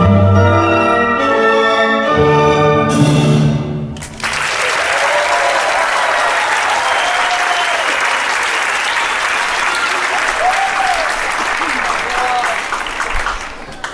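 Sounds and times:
orchestral music: 0.0s - 4.2s
audience applauding: 4.0s - 13.9s.

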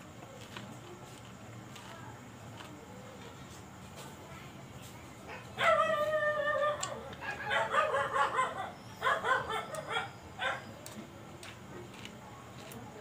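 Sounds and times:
dog whimpering and yipping: 5.6s - 10.6s.

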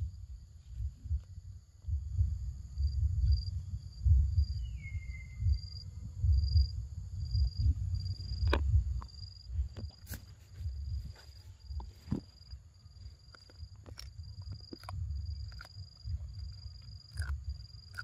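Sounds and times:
insects buzzing: 0.0s - 18.0s
wind rumble on microphone: 0.0s - 18.0s.

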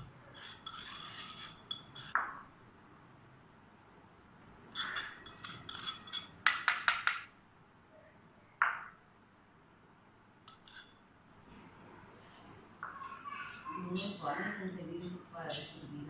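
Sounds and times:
metal spoon clinking on bowls: 0.4s - 2.2s, 4.8s - 7.2s, 13.1s - 16.0s.

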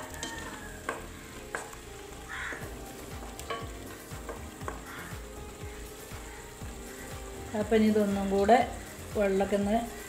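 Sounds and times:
spatula knocking and scraping pot: 0.0s - 1.8s
sauce sizzling: 0.0s - 10.0s.

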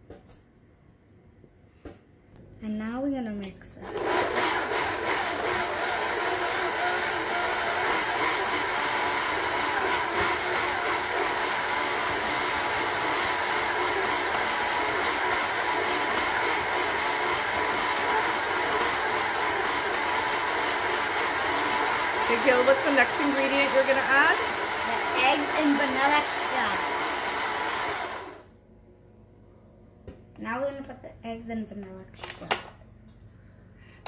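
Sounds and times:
stand mixer running: 3.8s - 28.5s.

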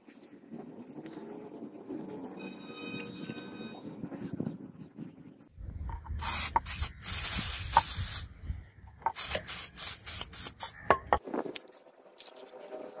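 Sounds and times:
liquid spray hissing: 6.2s - 8.3s, 9.1s - 10.9s.

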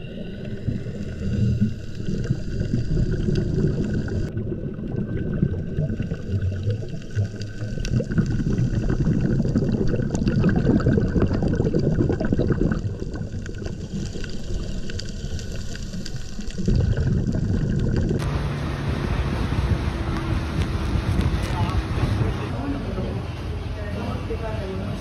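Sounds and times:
underwater bubbles gurgling: 0.0s - 18.3s.

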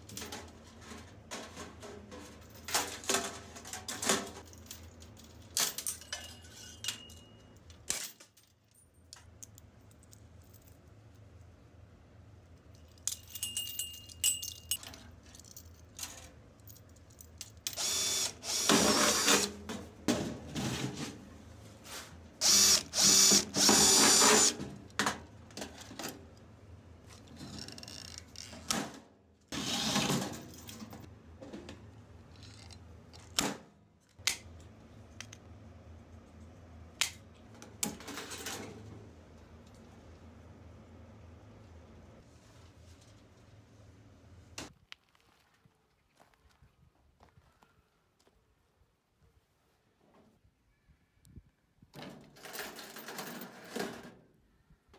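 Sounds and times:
metal chain clinking: 4.4s - 9.2s, 12.6s - 17.8s
power tool bursts: 17.8s - 19.6s, 22.4s - 24.6s, 29.6s - 30.2s.

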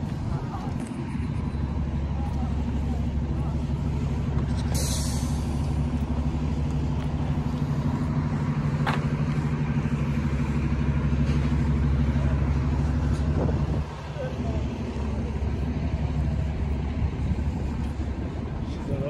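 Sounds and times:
vehicle engine running: 0.0s - 19.0s
brief hiss: 4.7s - 5.6s.

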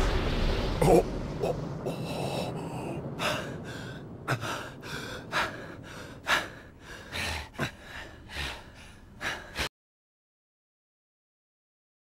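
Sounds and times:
man panting hard: 1.9s - 9.7s.

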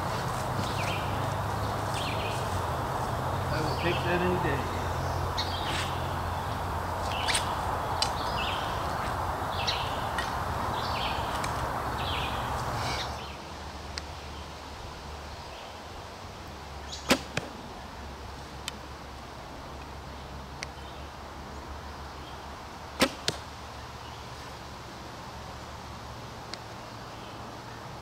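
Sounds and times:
steady hiss: 0.0s - 28.0s
bow string snap: 23.0s - 23.4s.

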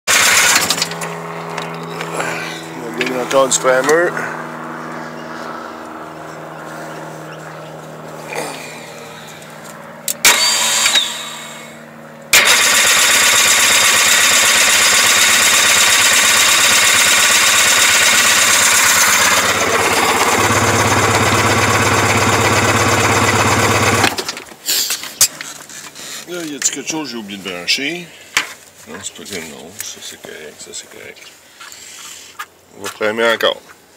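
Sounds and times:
starter cranking engine: 0.1s - 1.6s, 10.2s - 11.6s, 12.3s - 24.5s.

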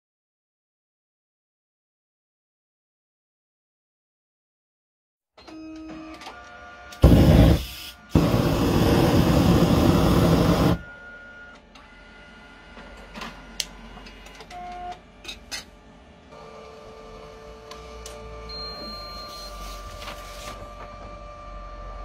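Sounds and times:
copier mechanism running: 6.9s - 10.8s.

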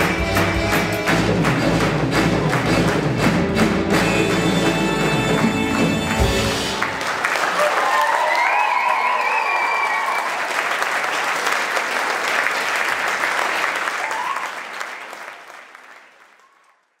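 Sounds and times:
held musical note: 0.0s - 7.4s
audience applauding: 0.0s - 17.0s.

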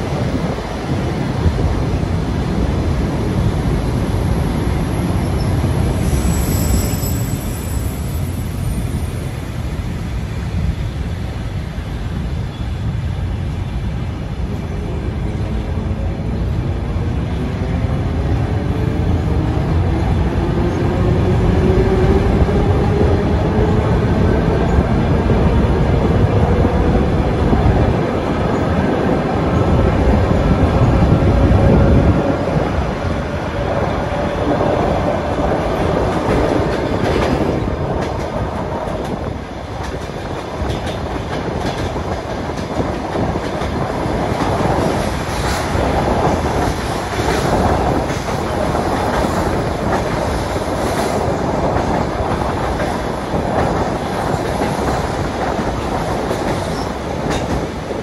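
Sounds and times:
heavy train rumble: 0.0s - 58.0s
train whine rising in pitch: 5.2s - 9.6s.

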